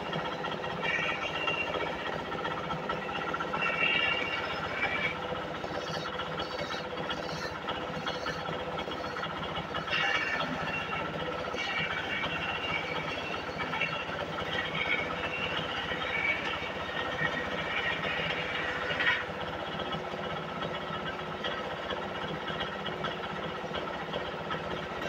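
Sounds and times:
wood lathe running: 0.0 - 25.0
chisel rasping on spinning wood: 3.6 - 19.2.

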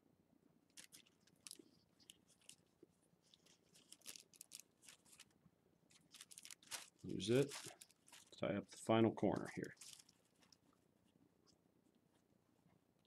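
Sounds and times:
tissue paper rustling: 0.8 - 5.3, 5.9 - 10.7.

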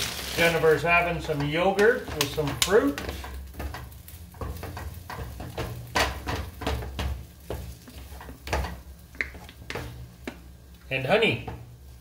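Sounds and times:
utensil scraping frying pan: 0.0 - 10.4
eggs sizzling: 0.0 - 12.0.

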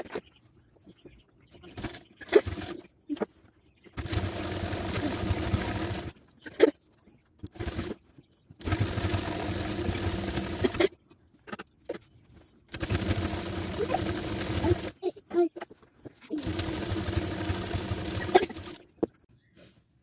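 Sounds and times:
sewing machine stitching: 1.7 - 2.9, 4.0 - 6.6, 7.4 - 8.0, 8.6 - 10.9, 12.7 - 15.0, 16.3 - 19.0.

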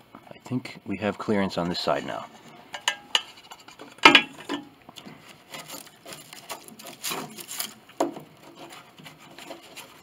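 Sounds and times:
wood shavings rustling and clattering: 3.3 - 10.0.

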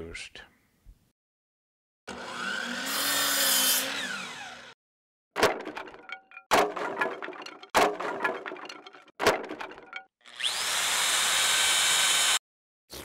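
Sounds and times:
power drill boring into wood: 2.1 - 4.8, 10.2 - 12.4
wooden dowel dropping on workbench: 5.4 - 10.0.

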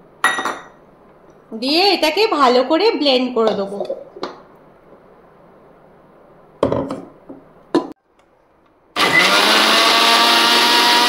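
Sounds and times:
mixer grinder motor blending: 9.0 - 11.0.

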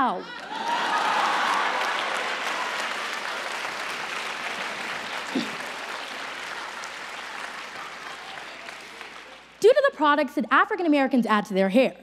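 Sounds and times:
audience applauding: 0.2 - 9.6.

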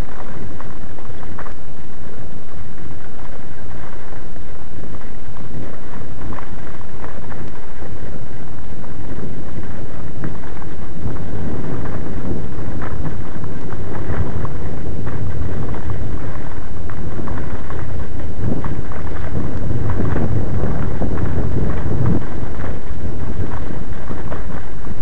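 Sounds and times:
wind buffeting microphone: 0.0 - 25.0
camera crackling and knocking: 2.7 - 25.0.

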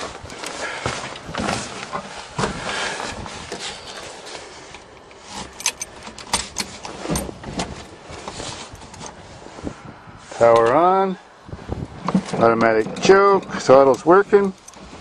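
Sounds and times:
keys jangling in ignition lock: 5.0 - 7.3, 13.0 - 14.8.

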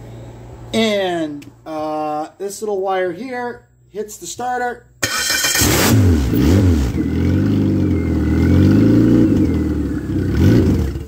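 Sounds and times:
four-cylinder engine revving: 5.0 - 11.0.

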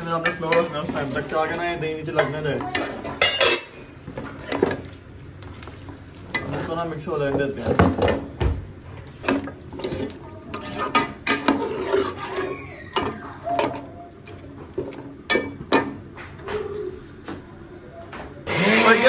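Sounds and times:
metal spatula scraping a pot: 9.2 - 13.9.

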